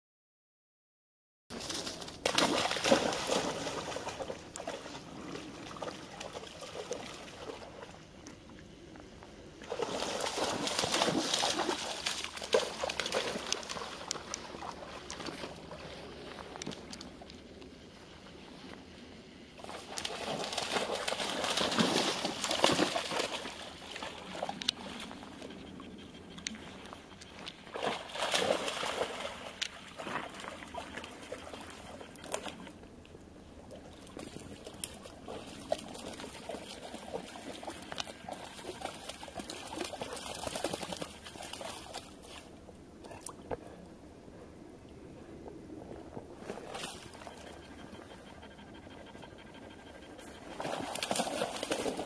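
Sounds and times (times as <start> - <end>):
dog splashing through water: 1.6 - 8.0, 9.6 - 16.0, 19.6 - 25.4, 27.7 - 32.7, 34.0 - 42.5, 50.4 - 52.0.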